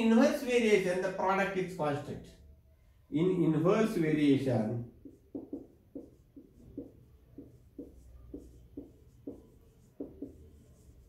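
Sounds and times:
marker writing on whiteboard: 0:04.8 - 0:11.0.

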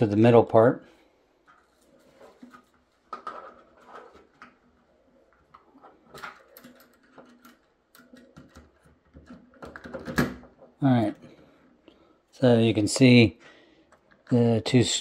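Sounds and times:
lock parts clicking and scraping: 0:05.3 - 0:11.3.

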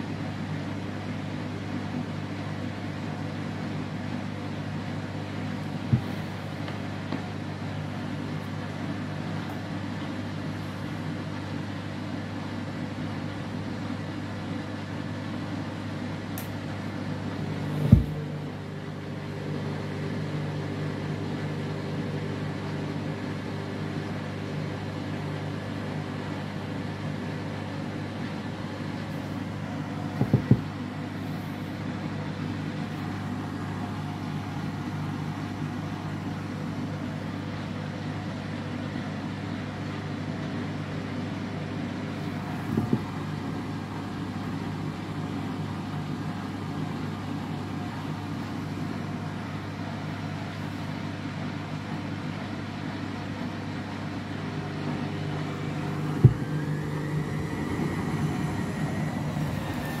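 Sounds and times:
faint motor whine: 0:00.0 - 1:00.0
washing machine motor and pump hum: 0:00.0 - 1:00.0
washing machine drum knocks: 0:17.8 - 0:18.2, 0:30.2 - 0:30.7, 0:56.2 - 0:56.6.

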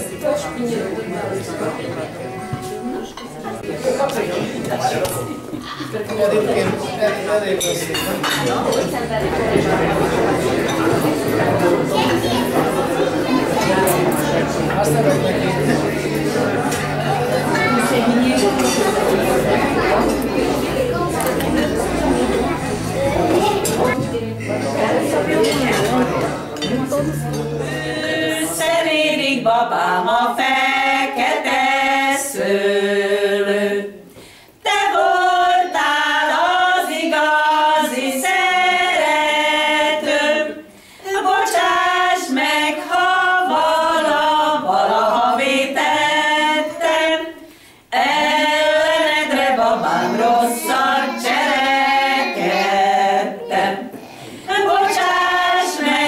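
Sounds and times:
women singing unaccompanied: 0:26.9 - 0:56.0.

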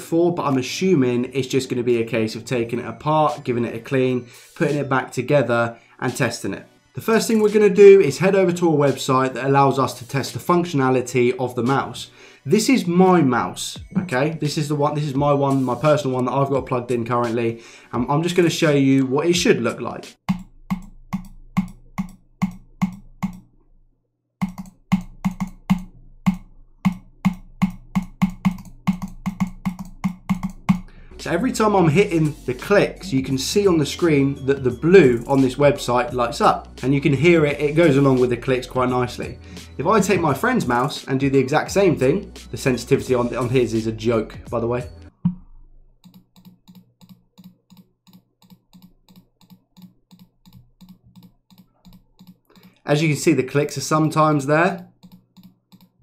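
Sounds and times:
computer mouse button clicking: 0:24.4 - 0:30.9, 0:46.0 - 0:52.8, 0:55.0 - 0:56.0.

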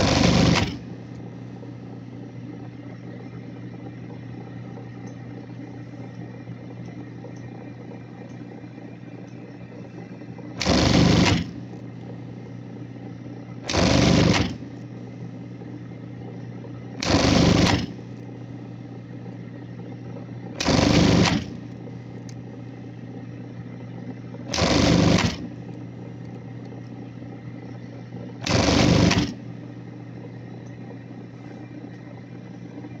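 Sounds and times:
sewing machine stitching bursts: 0:00.0 - 0:00.9, 0:10.6 - 0:11.6, 0:13.6 - 0:14.7, 0:17.0 - 0:18.1, 0:20.6 - 0:21.7, 0:24.5 - 0:25.5, 0:28.4 - 0:29.4
sewing machine motor humming: 0:00.0 - 0:01.3, 0:09.5 - 0:12.4, 0:13.3 - 0:14.9, 0:16.8 - 0:18.3, 0:20.5 - 0:22.4, 0:24.0 - 0:29.5.

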